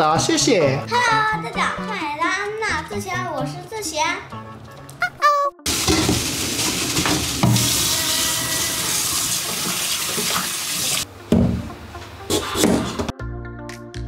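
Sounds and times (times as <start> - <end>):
tap water rushing into colander: 5.7 - 11.1.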